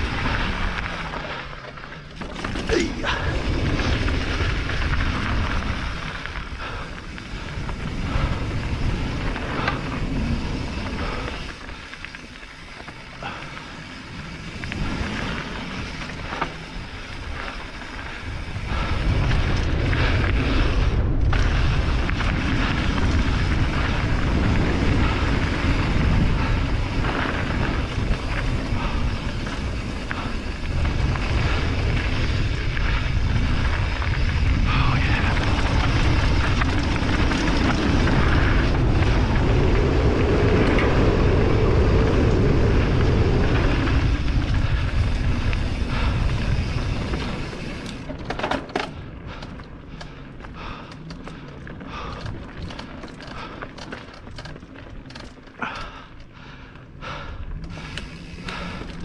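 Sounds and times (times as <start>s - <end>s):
bike tyres crunching over dirt: 0.0s - 59.0s
wind buffeting microphone: 2.2s - 48.3s.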